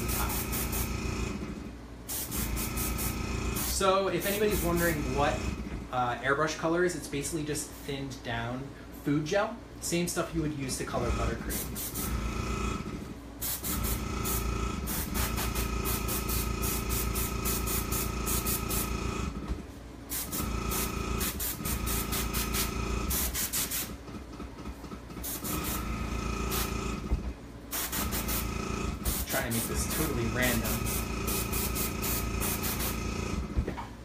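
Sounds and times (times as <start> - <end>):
airbrush spraying hiss: 0.0 - 0.9, 2.1 - 4.9, 11.5 - 12.0, 13.4 - 18.9, 20.1 - 24.0, 25.2 - 25.8, 26.5 - 26.7, 27.7 - 33.0
compressor humming: 0.0 - 34.0.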